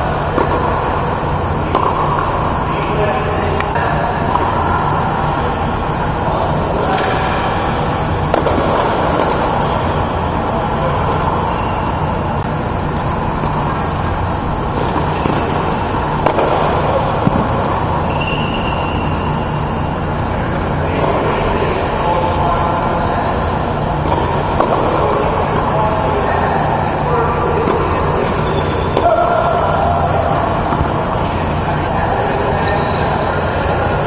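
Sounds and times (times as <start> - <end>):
ventilation blowers humming: 0.0 - 34.0.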